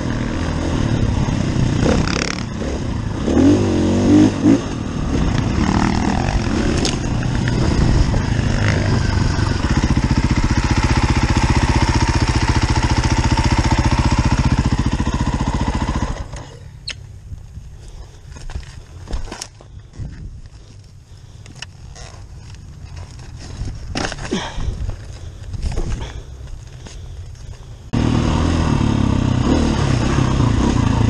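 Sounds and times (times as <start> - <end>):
motorcycle engine revving: 0.0 - 16.7, 27.7 - 31.0.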